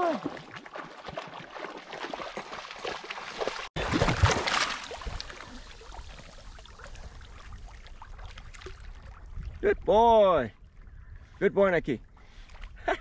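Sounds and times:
dog splashing through water: 0.0s - 6.4s.

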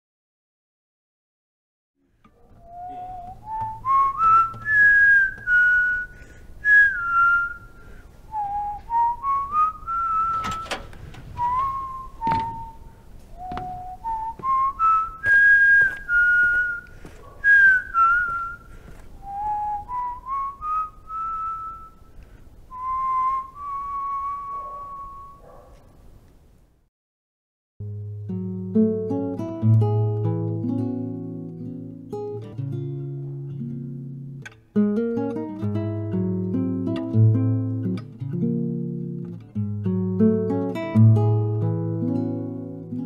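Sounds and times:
person whistling a melody: 2.6s - 10.8s, 11.4s - 22.1s, 22.7s - 25.4s
sharp knocks: 12.2s - 12.7s.

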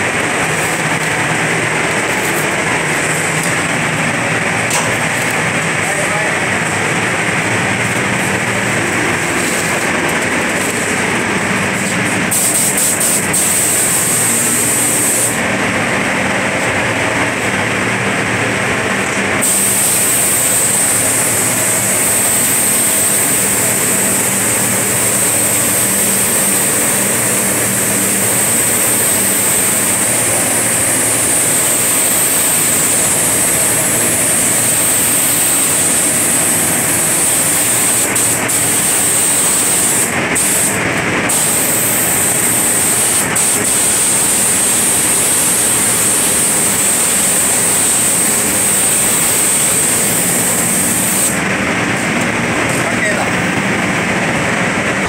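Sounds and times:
spray gun hissing: 11.8s - 15.4s, 19.4s - 51.4s.

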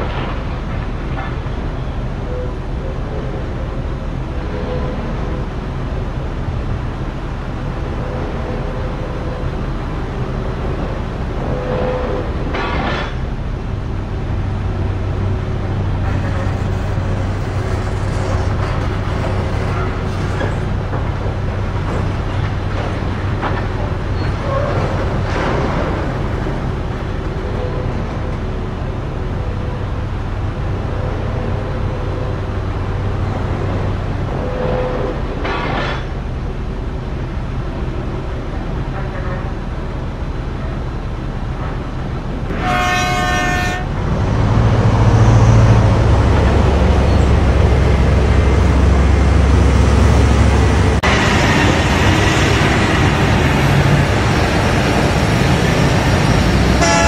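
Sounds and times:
heavy machinery drone: 43.8s - 57.0s
truck engine rumble: 43.8s - 57.0s
horn blast: 56.8s - 57.0s.

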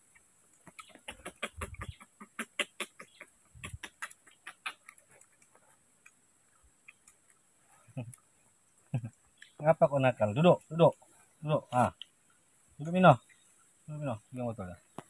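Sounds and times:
wet sucking clicks and smacks: 0.1s - 7.4s, 11.9s - 12.2s.

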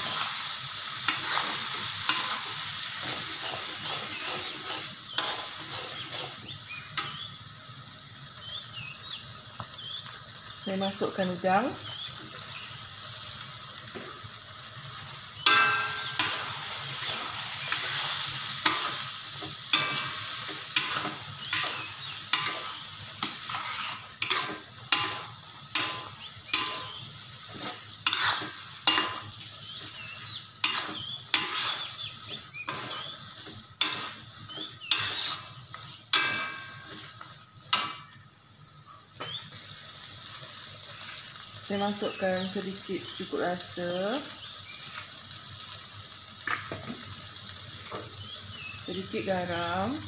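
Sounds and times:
metal spatula scraping a wok: 0.0s - 7.2s, 15.4s - 38.0s
prawns sizzling in sauce: 0.0s - 50.0s.

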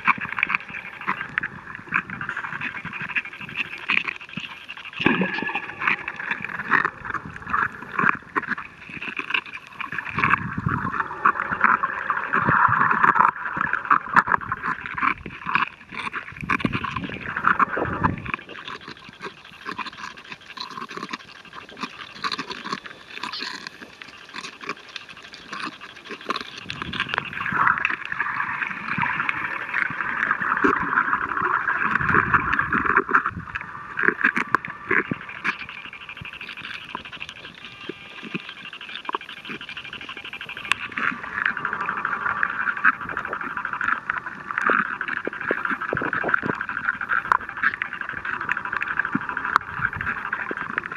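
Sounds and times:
small crackling clicks: 0.0s - 50.9s
underwater rushing water: 0.0s - 50.9s
low underwater surges: 9.9s - 14.6s, 16.7s - 19.1s.

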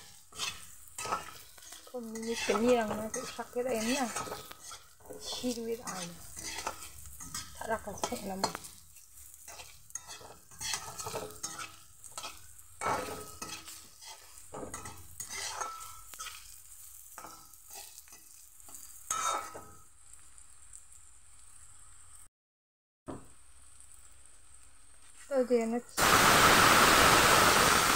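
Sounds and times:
metal spatula scraping metal pan: 0.0s - 19.7s
oil sizzling: 0.0s - 22.3s, 23.1s - 27.9s.

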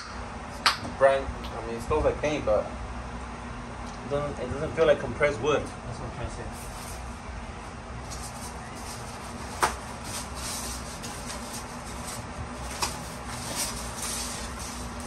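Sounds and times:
packing material rustling: 8.0s - 15.0s.

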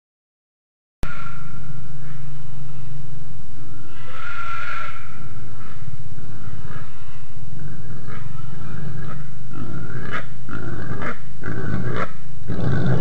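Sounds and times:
wild boar grunting and growling: 7.6s - 13.0s.

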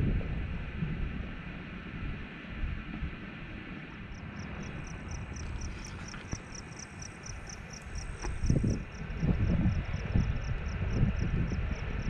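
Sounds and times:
low rumble: 0.0s - 12.0s
insect chirping: 4.0s - 12.0s.

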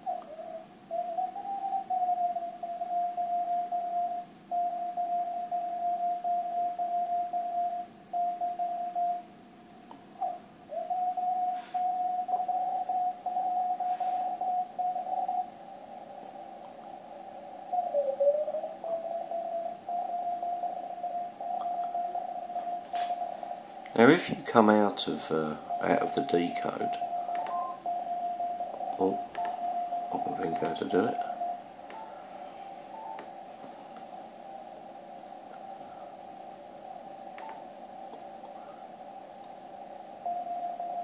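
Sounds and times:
morse code beeping tone: 2.8s - 9.3s, 10.2s - 15.5s, 17.8s - 33.4s, 40.2s - 41.0s.

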